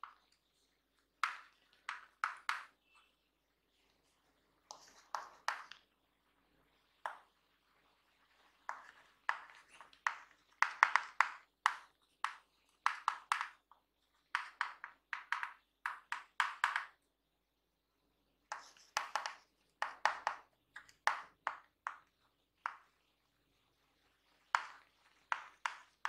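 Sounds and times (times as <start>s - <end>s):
chalk scratching on chalkboard: 4.7s - 5.8s, 18.5s - 19.5s.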